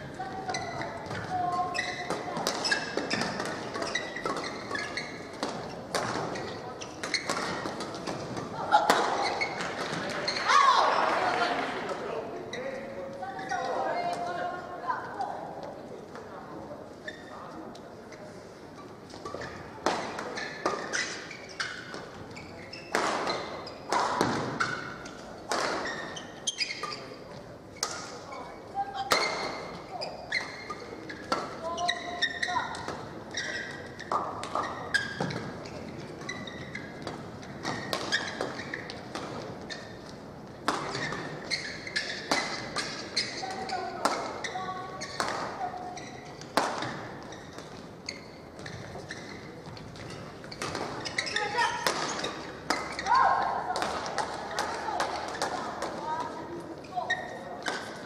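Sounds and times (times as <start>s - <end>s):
shoes squeaking on court: 0.0s - 11.3s, 12.4s - 14.3s, 16.9s - 58.0s
rackets hitting shuttlecock: 1.9s - 10.4s, 22.8s - 26.9s, 37.0s - 39.6s, 40.6s - 44.4s, 45.0s - 45.8s, 46.4s - 47.9s, 48.6s - 56.4s.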